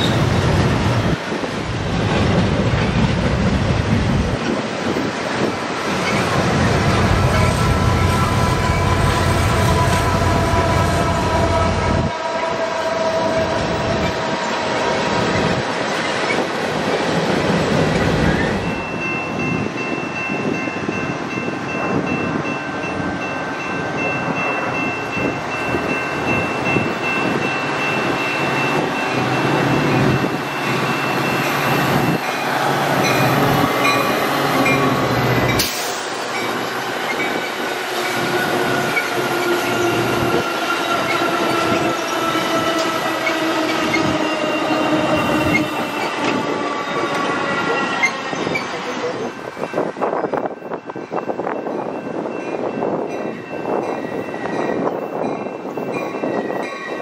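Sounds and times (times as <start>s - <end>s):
freight cars clattering on rails: 0.0s - 7.9s
commuter train wheel and rail noise: 0.0s - 57.0s.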